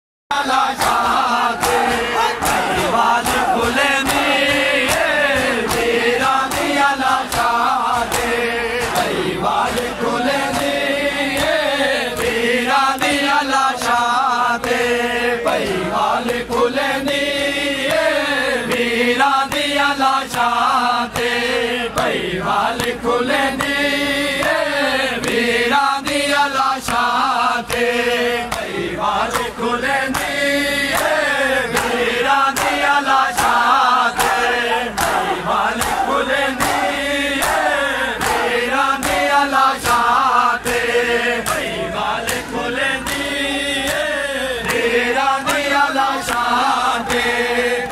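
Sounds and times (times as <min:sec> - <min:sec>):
men chanting in unison: 0:00.3 - 0:47.9
chest-beating slaps: 0:00.8 - 0:10.0, 0:29.3 - 0:47.4.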